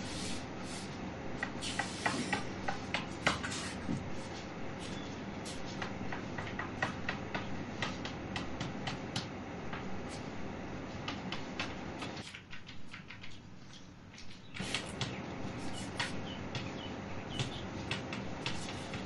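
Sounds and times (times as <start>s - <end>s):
room hiss: 0.0s - 2.6s
chalk tapping and scratching: 0.0s - 10.3s, 11.0s - 16.8s, 17.4s - 19.0s.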